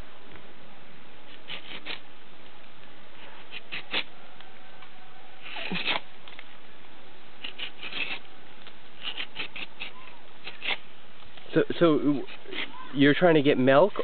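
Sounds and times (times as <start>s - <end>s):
knife scraping tree bark: 1.3s - 2.0s, 3.2s - 4.1s, 5.4s - 6.1s, 7.4s - 8.3s, 9.0s - 10.9s, 12.0s - 12.8s.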